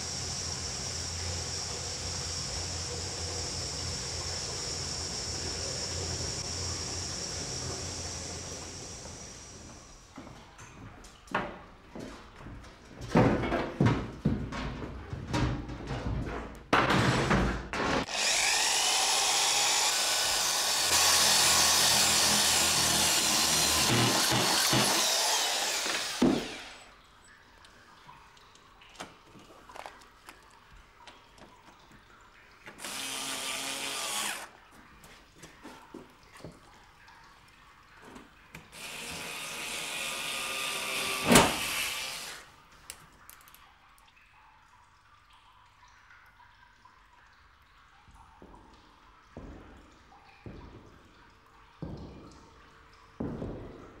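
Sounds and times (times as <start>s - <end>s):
power drill driving screws into metal: 18.0s - 26.8s, 38.8s - 42.4s.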